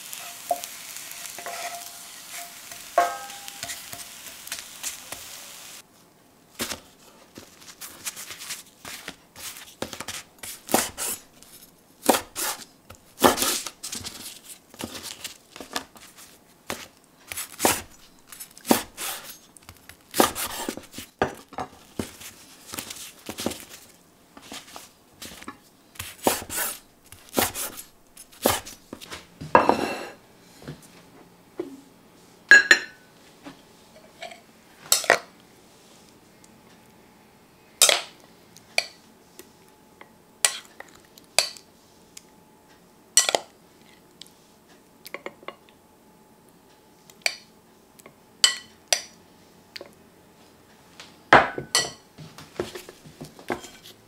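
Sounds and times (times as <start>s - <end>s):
ceramic dishes clinking: 3.0s - 3.7s, 29.6s - 30.2s, 32.5s - 33.0s.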